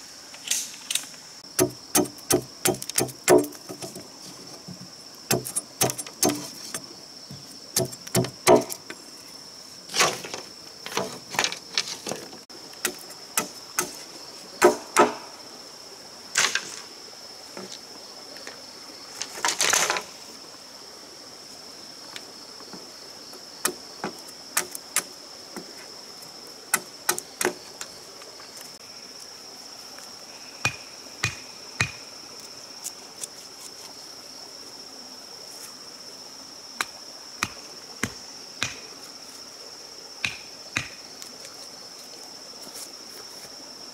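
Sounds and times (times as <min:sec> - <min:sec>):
high insect drone: 0:00.0 - 0:43.9
bamboo splitting crackle: 0:00.4 - 0:04.1, 0:05.3 - 0:06.8, 0:16.4 - 0:16.9, 0:19.2 - 0:20.2
machete chopping bamboo: 0:01.5 - 0:03.9, 0:05.3 - 0:06.8, 0:07.8 - 0:08.8, 0:12.8 - 0:14.0, 0:14.6 - 0:15.3, 0:30.7 - 0:32.0, 0:36.8 - 0:38.9, 0:40.2 - 0:41.0.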